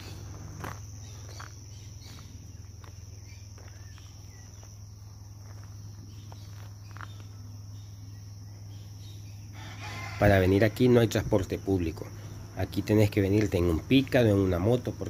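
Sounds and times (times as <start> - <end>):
footsteps on dirt road: 0.0 - 8.1
insects chirring: 0.0 - 15.0.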